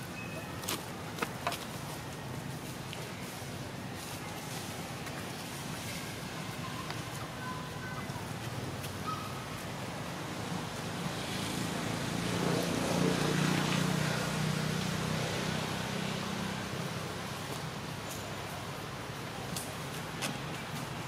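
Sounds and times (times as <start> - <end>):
outdoor background noise: 0.0 - 21.0
vehicle engine passing: 11.1 - 16.4.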